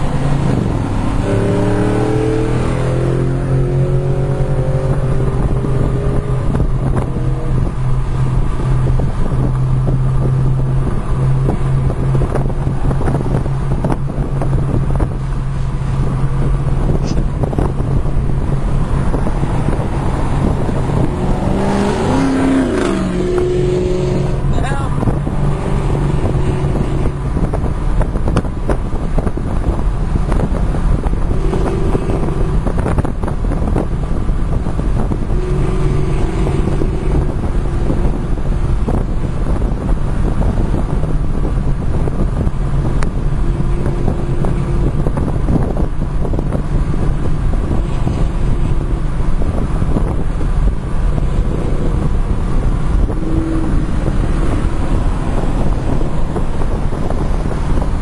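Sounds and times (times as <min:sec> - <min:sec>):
car road noise: 0:00.0 - 0:58.0
wind buffeting microphone: 0:00.0 - 0:58.0
low engine drone: 0:30.4 - 0:58.0.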